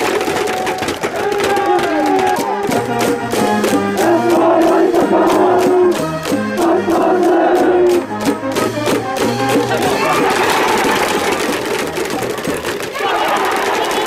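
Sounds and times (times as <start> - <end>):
students chanting: 4.0 - 8.1.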